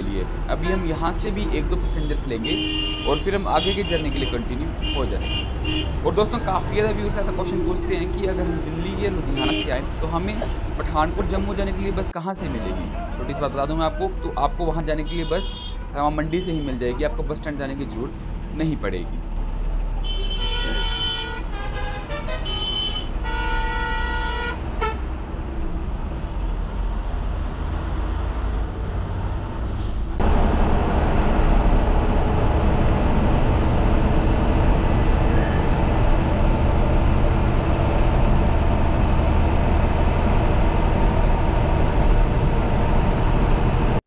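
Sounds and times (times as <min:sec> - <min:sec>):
bus engine and road noise: 0:00.0 - 0:44.0
vehicle horn blasts: 0:02.4 - 0:06.0, 0:09.3 - 0:09.8, 0:15.0 - 0:16.9, 0:20.0 - 0:25.0.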